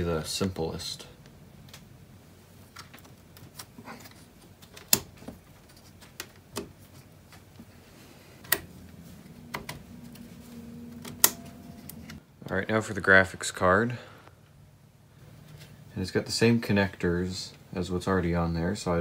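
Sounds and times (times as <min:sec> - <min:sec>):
latches snapping shut: 0:11.0 - 0:12.2.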